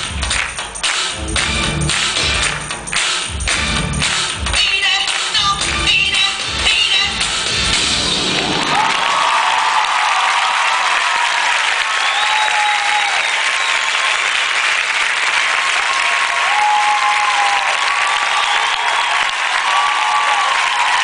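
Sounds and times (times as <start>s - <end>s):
audience applauding: 0.0s - 4.4s, 8.2s - 21.0s
voices cheering: 8.5s - 14.3s, 15.5s - 21.0s.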